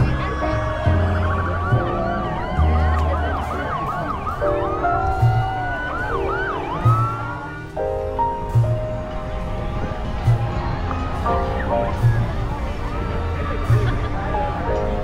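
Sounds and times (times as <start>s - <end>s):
music playing: 0.0s - 15.0s
siren-like whoops: 0.1s - 7.7s.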